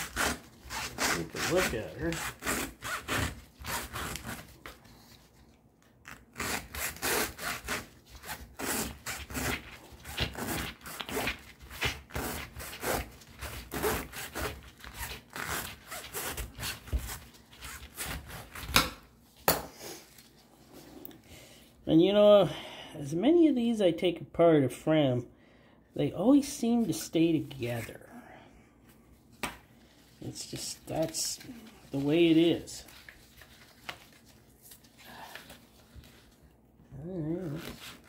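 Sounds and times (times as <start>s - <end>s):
knife sawing through filter paper: 0.0s - 4.8s, 6.3s - 18.7s.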